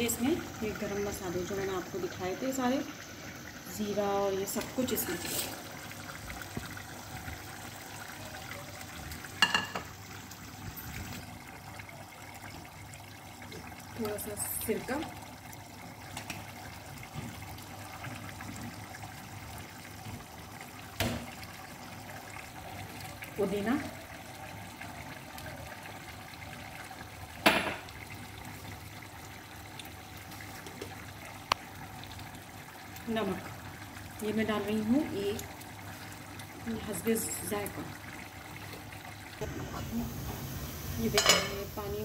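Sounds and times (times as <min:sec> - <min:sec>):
pot hissing on gas burner: 0:00.0 - 0:11.5, 0:39.4 - 0:42.0
gas burner hissing: 0:39.4 - 0:42.0.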